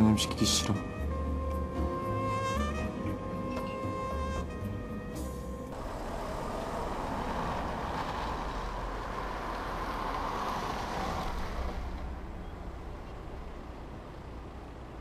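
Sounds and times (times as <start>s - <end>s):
car passing by: 5.7s - 14.3s.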